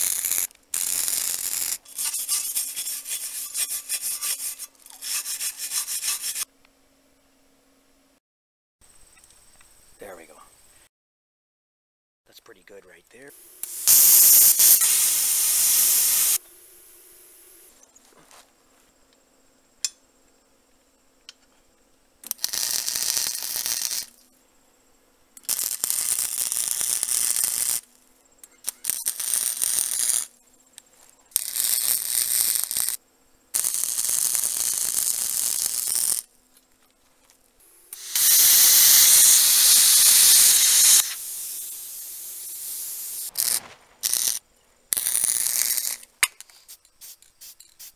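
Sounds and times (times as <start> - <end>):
arc welder hissing: 0.0 - 6.5, 13.3 - 17.8, 22.3 - 24.2, 25.4 - 27.9, 28.5 - 30.3, 31.4 - 33.0, 33.6 - 36.3, 37.6 - 47.9.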